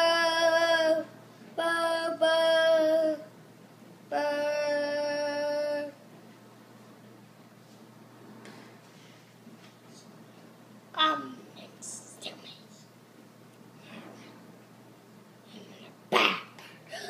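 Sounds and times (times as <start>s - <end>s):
person singing long held notes: 4.1s - 6.0s.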